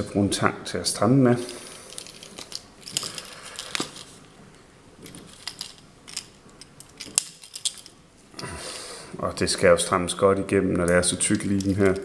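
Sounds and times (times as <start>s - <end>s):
fishing line rustling: 1.4s - 4.3s.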